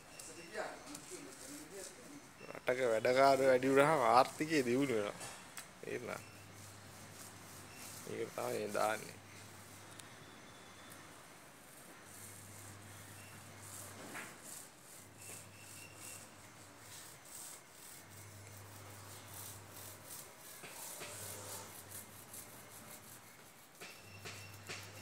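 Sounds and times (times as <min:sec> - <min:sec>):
paint roller rubbing on wall: 0:00.8 - 0:02.2, 0:05.9 - 0:09.9, 0:11.6 - 0:25.0.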